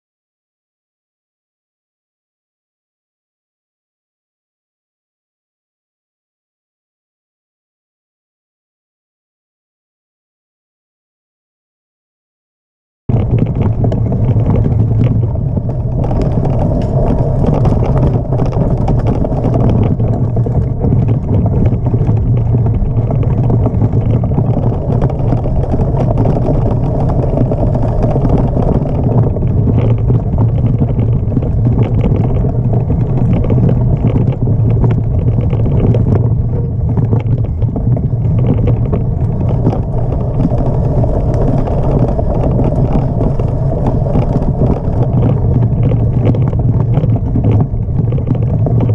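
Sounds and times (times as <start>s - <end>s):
bike frame rattling: 13.1s - 48.9s
tyres rumbling on dirt: 13.1s - 48.9s
wind on microphone: 13.1s - 48.9s.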